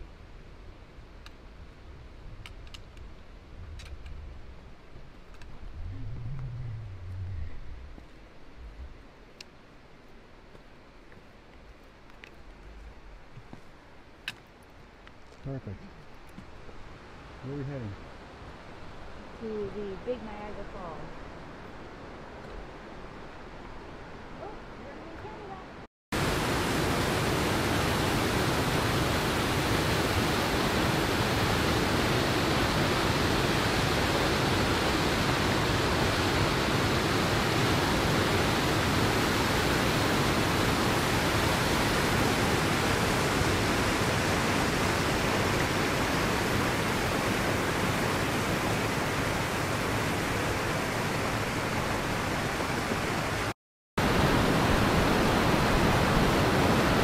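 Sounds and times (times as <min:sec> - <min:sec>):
waterfall rushing: 0:26.2 - 0:57.0.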